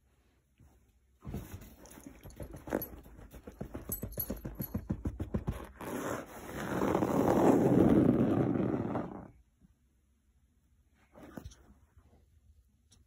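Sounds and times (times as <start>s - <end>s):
fingertips scratching mesh fabric: 5.5s - 9.3s.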